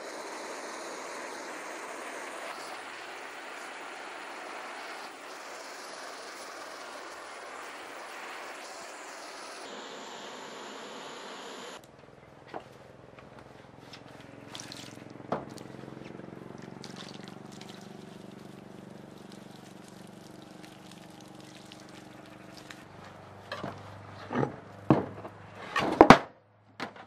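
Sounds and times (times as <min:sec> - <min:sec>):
water pouring onto wooden board: 0:14.5 - 0:15.7, 0:16.6 - 0:22.9.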